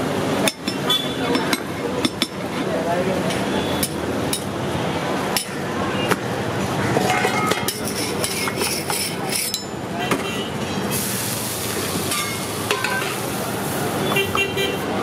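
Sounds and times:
street noise: 0.0s - 15.0s
spoon and lids clinking on steel: 7.0s - 9.8s, 12.1s - 13.2s.

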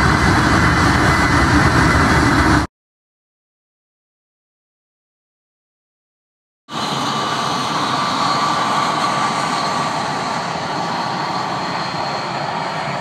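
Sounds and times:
jet engines roaring with whine: 0.0s - 2.7s, 6.7s - 13.0s.

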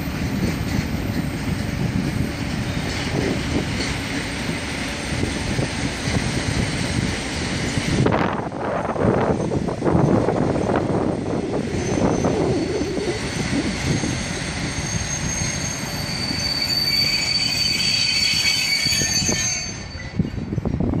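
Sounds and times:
train wheels squealing: 0.0s - 6.9s, 11.5s - 21.0s
freight train rumbling: 0.0s - 21.0s.

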